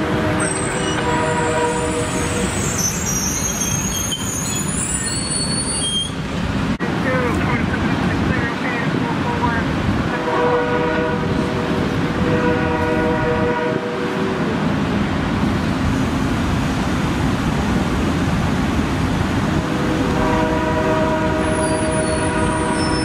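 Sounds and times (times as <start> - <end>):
locomotive horn blasts: 0.0 - 2.5, 10.2 - 11.4, 12.2 - 14.2, 19.8 - 23.0
train cars rumbling over rails: 0.0 - 23.0.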